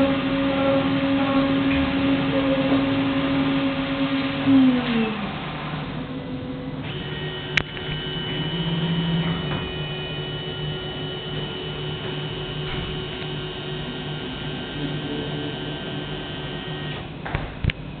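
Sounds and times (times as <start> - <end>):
milling spindle winding down: 0.0 - 17.2
stepper motors whining over hum: 0.0 - 18.0.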